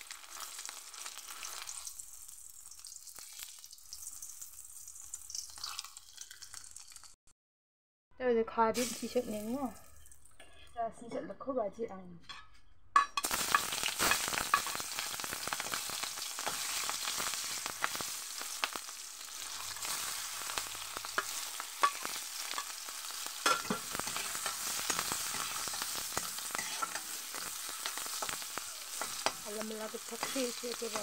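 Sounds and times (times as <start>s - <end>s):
crackles in frying oil: 0.0s - 7.2s, 8.7s - 10.8s, 13.0s - 31.0s
hot oil sizzling: 0.0s - 7.2s, 8.7s - 10.6s, 13.1s - 31.0s
metal spatula scraping pan: 10.4s - 11.3s, 12.2s - 14.8s, 19.4s - 31.0s.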